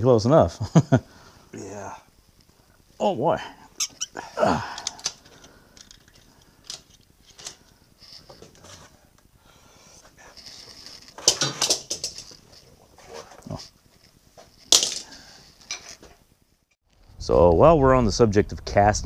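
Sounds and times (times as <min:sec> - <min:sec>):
metal tools clicking and knocking: 0:11.2 - 0:12.4.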